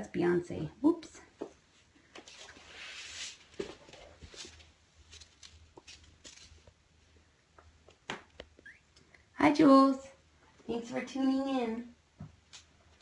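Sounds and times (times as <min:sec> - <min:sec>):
kittens scampering on a floor: 0:01.4 - 0:06.9.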